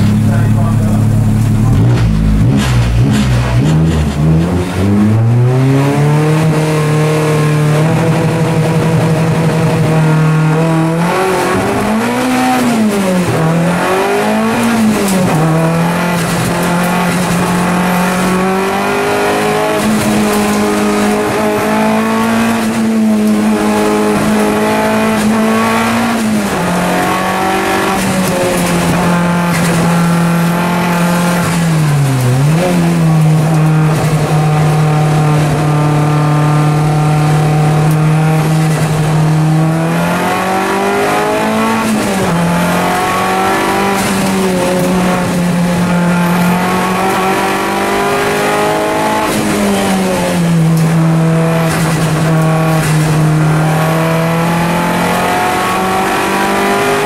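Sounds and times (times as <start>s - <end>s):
race car engine at high revs: 0.0s - 57.0s.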